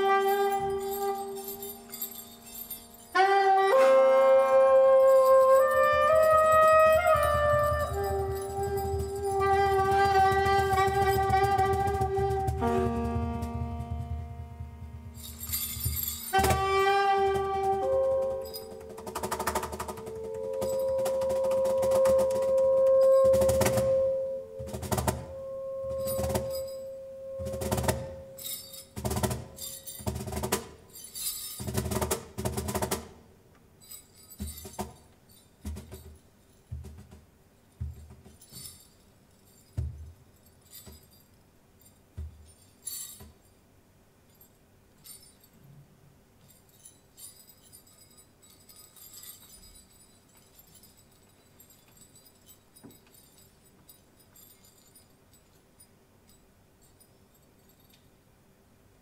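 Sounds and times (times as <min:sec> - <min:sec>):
light metallic jingles: 0:00.0 - 0:14.1, 0:14.9 - 0:32.4, 0:33.6 - 0:58.9
sustained woodwind note: 0:03.0 - 0:28.7
drum strikes: 0:09.8 - 0:25.4.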